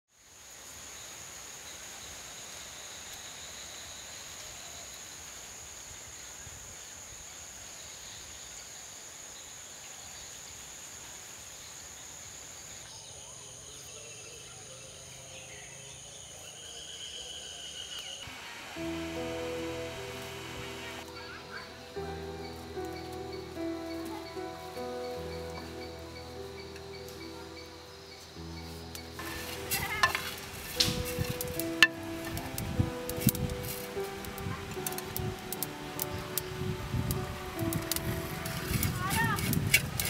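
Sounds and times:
background hiss: 0.1 - 40.0
high-pitched insect drone: 13.3 - 39.7
high sustained call: 18.2 - 21.9.

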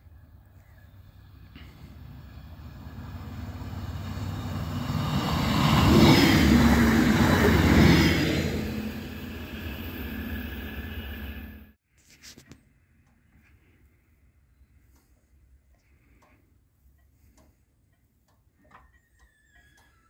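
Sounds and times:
train engine hum: 0.0 - 11.8
train wheels rumbling: 0.0 - 11.8.

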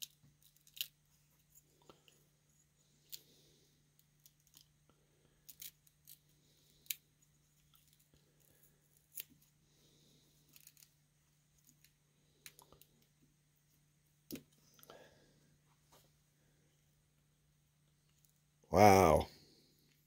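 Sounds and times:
small metal parts clicking: 0.0 - 1.0, 5.4 - 7.0, 10.5 - 10.9.

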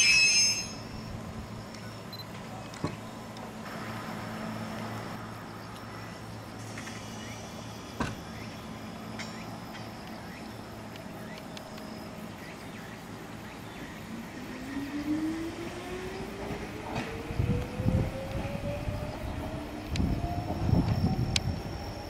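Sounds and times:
electric train humming: 0.0 - 22.0
train motor whine rising: 14.1 - 22.0.

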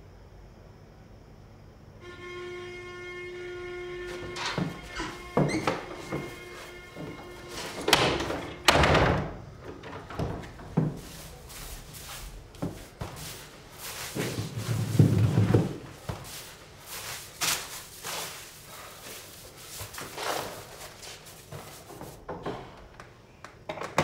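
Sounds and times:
knocks and scraping: 4.0 - 22.8
footsteps on wooden floor: 4.1 - 8.6, 10.0 - 22.6.

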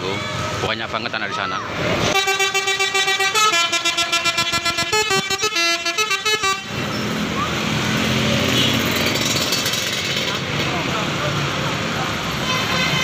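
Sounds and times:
engine and street noise: 0.0 - 13.0
bus horn playing a tune: 2.1 - 6.8, 12.4 - 13.0.

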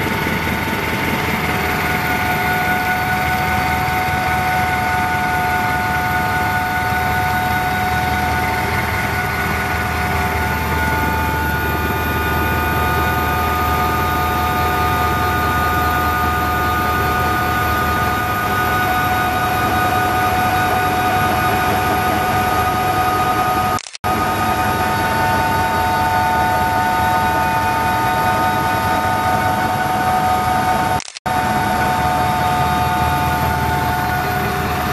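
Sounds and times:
helicopter turbine and rotor: 0.0 - 34.9.

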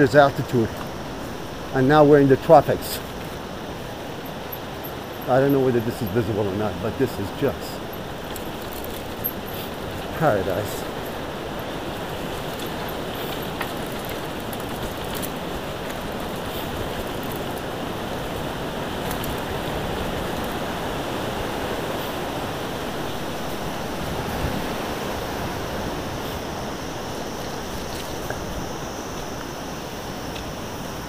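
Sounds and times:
bike tyres rolling over gravel: 0.0 - 31.0
wind on microphone: 6.0 - 31.0
small clicks and rattles: 7.4 - 22.2.

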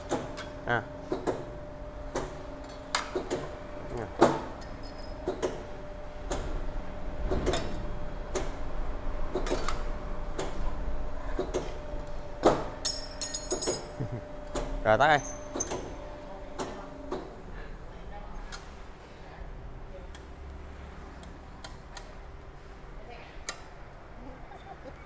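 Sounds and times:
metallic clacks of shear blades: 12.8 - 13.9.

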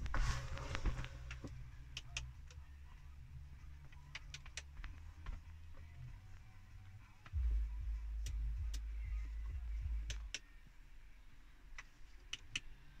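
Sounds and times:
low rumble: 7.3 - 10.3.

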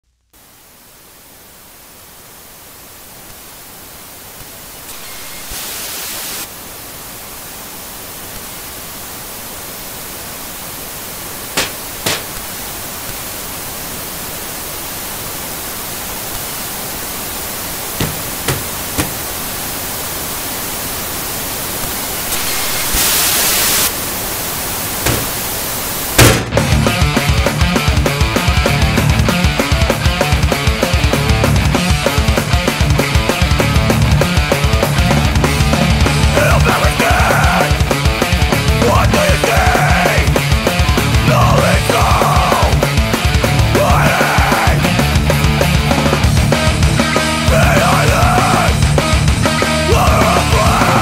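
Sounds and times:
television static hiss: 0.0 - 47.6.

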